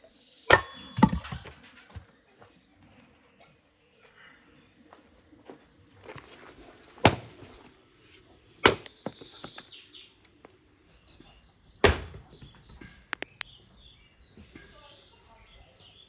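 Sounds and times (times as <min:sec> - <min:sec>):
axe chopping firewood: 0:00.5 - 0:02.0, 0:07.0 - 0:07.6, 0:08.6 - 0:09.7, 0:11.8 - 0:12.4.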